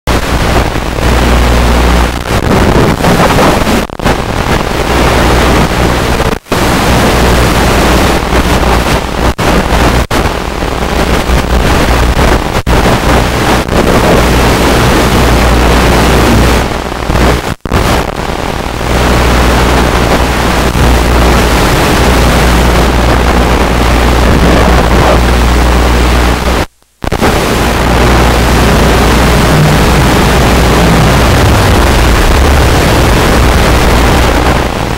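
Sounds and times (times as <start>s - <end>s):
airflow rushing: 27.2s - 34.9s.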